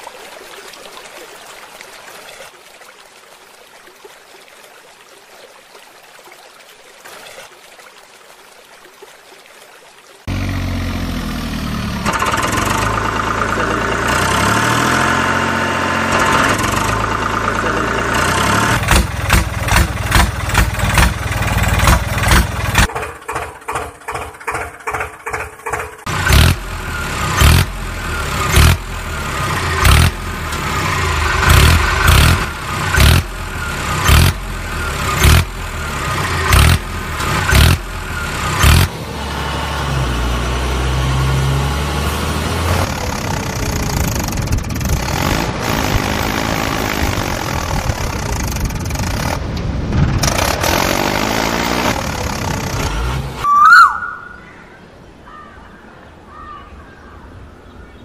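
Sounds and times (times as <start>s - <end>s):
tractor diesel engine chugging: 12.1s - 27.3s.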